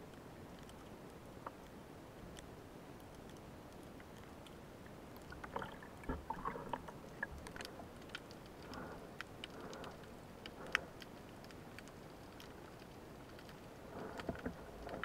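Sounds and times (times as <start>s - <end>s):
sharp underwater clicks: 0.1s - 15.0s
water swishing: 5.2s - 11.0s.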